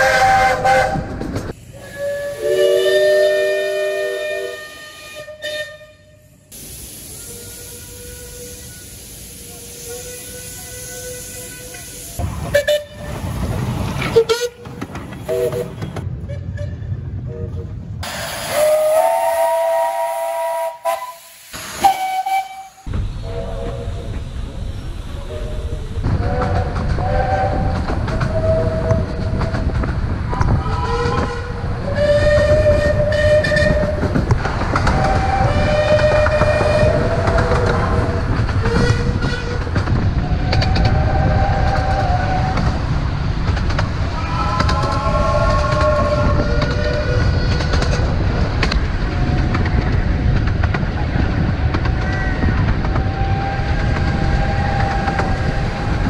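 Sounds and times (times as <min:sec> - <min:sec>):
miniature steam locomotive whistle: 0:00.0 - 0:01.0, 0:01.7 - 0:06.1, 0:07.1 - 0:12.0, 0:18.5 - 0:24.0, 0:30.7 - 0:34.0, 0:34.9 - 0:37.6
carriages rumbling on track: 0:07.3 - 0:20.4, 0:22.4 - 0:56.0.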